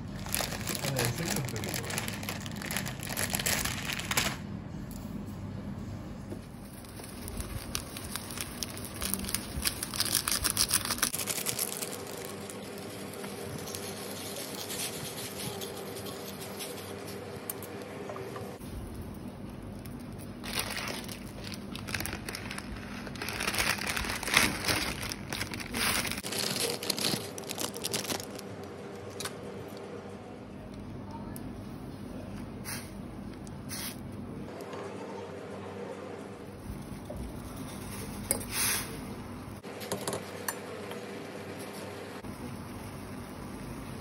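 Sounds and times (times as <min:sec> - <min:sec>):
plastic packets crinkling and tearing: 0:00.0 - 0:04.4, 0:06.7 - 0:14.7, 0:19.8 - 0:29.3.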